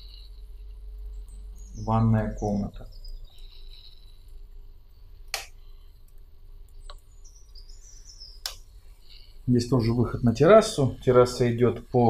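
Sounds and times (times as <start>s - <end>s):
birds chirping: 0.0s - 12.0s
low steady hum: 0.0s - 12.0s
sharp clicks: 5.3s - 7.1s, 8.4s - 8.7s.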